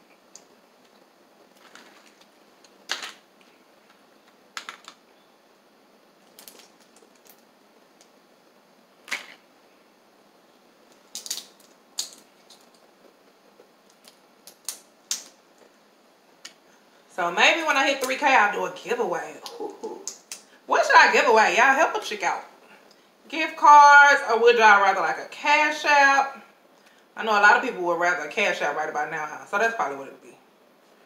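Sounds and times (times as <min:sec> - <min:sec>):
crawfish shells cracking: 0:06.2 - 0:08.2, 0:10.8 - 0:15.7, 0:19.4 - 0:20.5.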